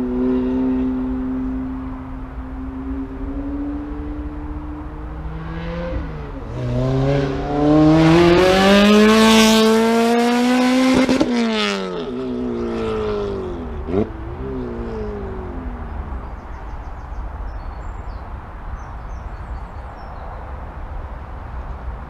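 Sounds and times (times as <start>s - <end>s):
car engine accelerating past: 2.9s - 16.6s.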